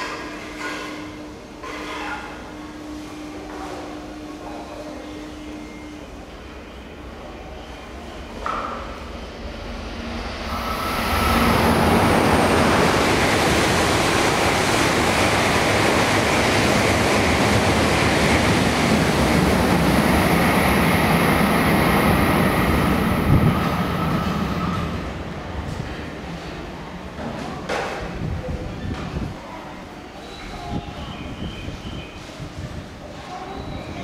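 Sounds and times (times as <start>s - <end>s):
train rushing past: 6.1s - 27.2s.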